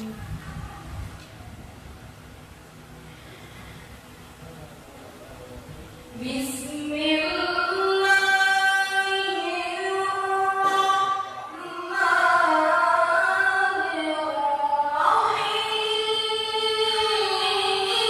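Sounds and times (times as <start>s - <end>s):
woman chanting melodiously: 6.2s - 18.0s.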